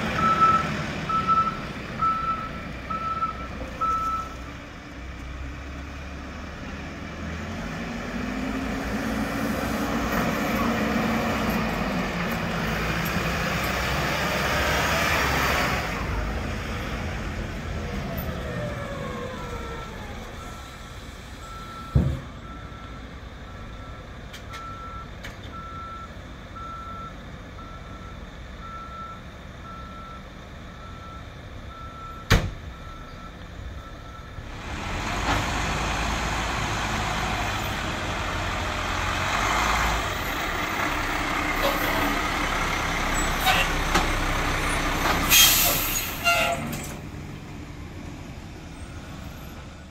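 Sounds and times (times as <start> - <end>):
diesel engine running: 28.4 - 49.9.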